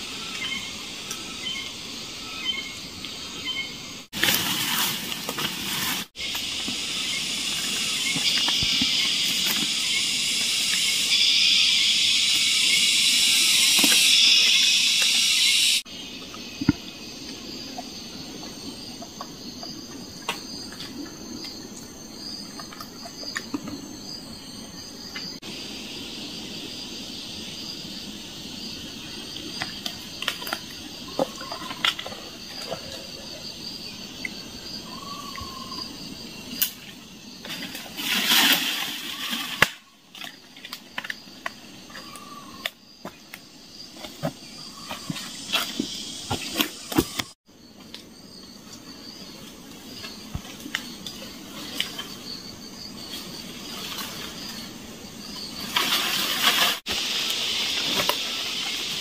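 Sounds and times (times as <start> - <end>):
high insect drone: 0.0 - 59.0
loud hiss: 5.8 - 15.8, 56.2 - 59.0.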